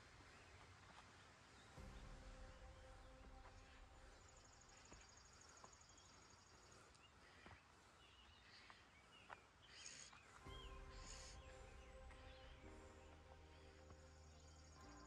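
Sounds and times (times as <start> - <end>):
faint bird chirps: 0.3 - 15.0
low hum: 1.8 - 6.6, 10.4 - 15.0.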